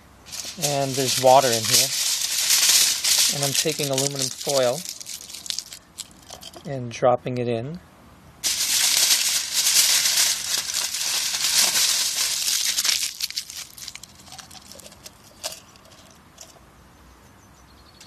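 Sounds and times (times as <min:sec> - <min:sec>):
aluminum foil crinkling: 0:00.3 - 0:06.6, 0:08.4 - 0:16.6.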